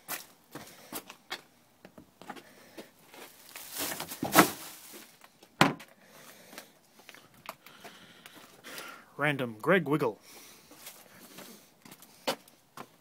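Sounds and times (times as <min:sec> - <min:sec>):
rustling: 0:03.0 - 0:05.5.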